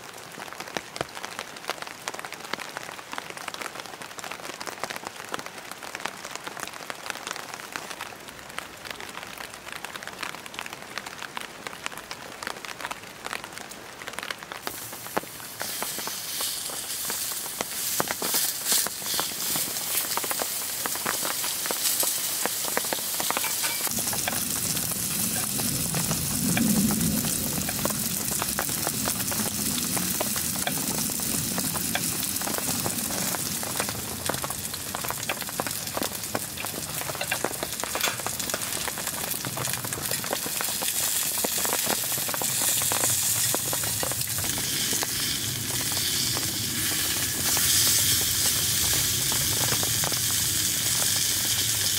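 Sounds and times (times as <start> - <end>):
pork sizzling in a skillet: 14.6 - 51.9.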